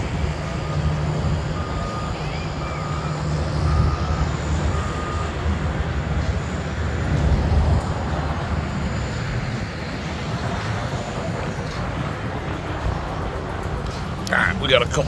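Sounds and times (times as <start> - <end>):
vehicle backup alarm beeping: 0.0 - 6.8
construction machinery rumble: 0.0 - 15.0
traffic: 0.0 - 15.0.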